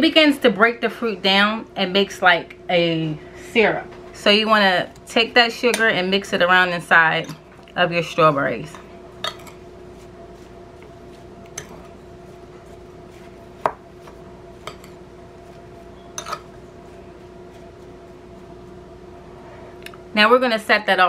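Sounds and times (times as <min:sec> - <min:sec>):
steady low hum: 0:00.0 - 0:21.0
spoon clinking against glass bowl: 0:16.1 - 0:16.5.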